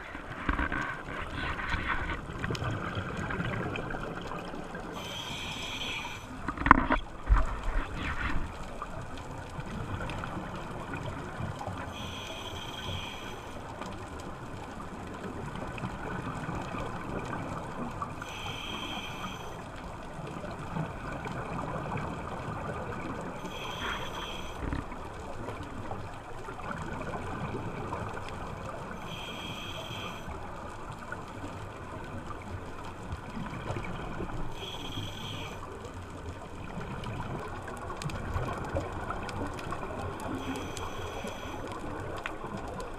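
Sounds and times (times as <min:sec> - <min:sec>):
regulator breath hissing and bubbling: 0:04.9 - 0:06.8, 0:11.9 - 0:13.7, 0:18.2 - 0:19.7, 0:23.3 - 0:25.0, 0:28.9 - 0:30.5, 0:34.5 - 0:35.7, 0:40.2 - 0:41.8.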